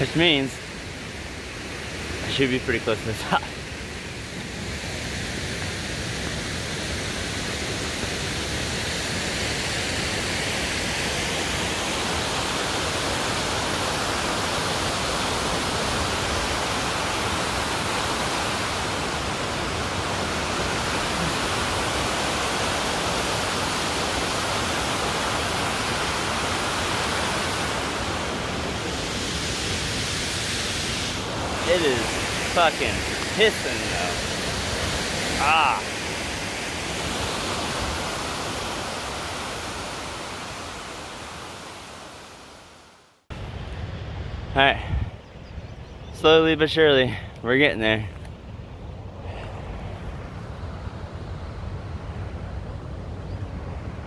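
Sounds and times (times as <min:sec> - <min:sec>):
waterfall roaring: 0:00.0 - 0:42.8.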